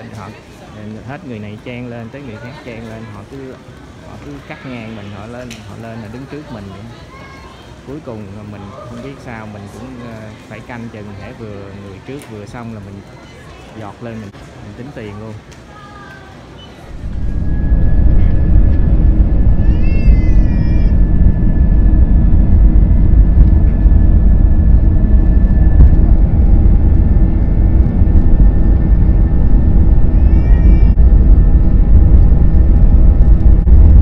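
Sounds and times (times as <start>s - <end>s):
thin steady whine: 7.8s - 34.0s
jet engine rumble: 16.4s - 34.0s
short high wavering cry: 19.5s - 21.0s.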